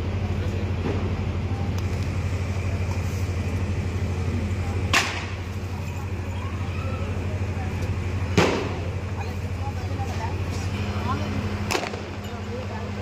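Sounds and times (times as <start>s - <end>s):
engine humming: 0.0s - 13.0s
sharp crack: 4.9s - 5.4s, 8.4s - 8.8s, 11.7s - 12.2s.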